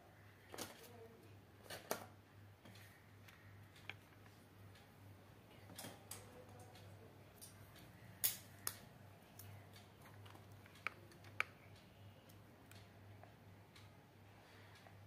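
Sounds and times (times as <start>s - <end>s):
faint low hum: 0.0s - 15.0s
light clicks and taps: 2.6s - 4.9s, 5.5s - 14.0s.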